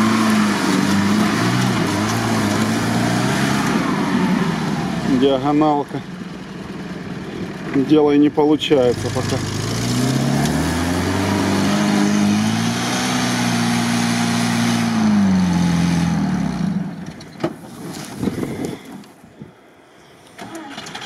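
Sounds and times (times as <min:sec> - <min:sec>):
engine revving hard: 0:00.0 - 0:05.4, 0:08.8 - 0:16.8
wheels spinning spraying dirt: 0:00.0 - 0:05.5, 0:08.8 - 0:16.4
clunks: 0:17.0 - 0:19.2, 0:20.3 - 0:21.0.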